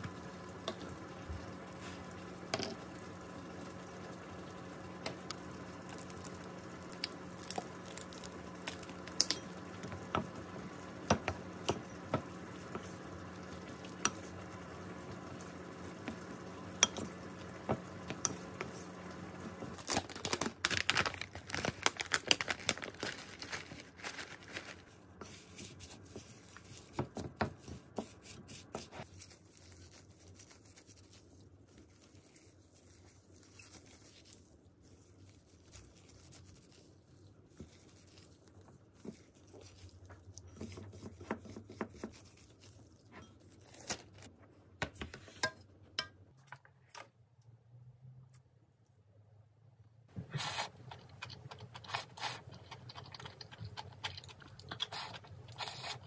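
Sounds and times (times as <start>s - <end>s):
packaging crinkling and tearing: 5.8s - 9.2s, 19.7s - 27.0s.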